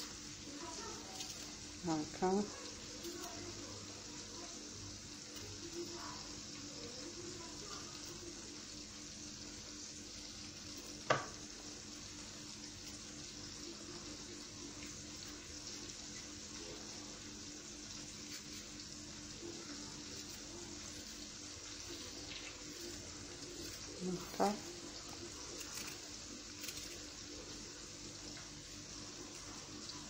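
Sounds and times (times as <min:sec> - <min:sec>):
chicken sizzling in a pan: 0:00.0 - 0:30.0
knife tap on cutting board: 0:11.1 - 0:11.3.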